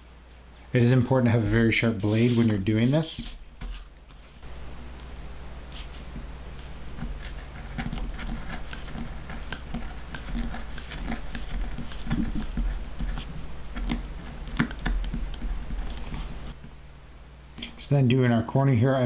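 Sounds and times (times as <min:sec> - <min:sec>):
knife cutting leather: 0:07.0 - 0:16.4.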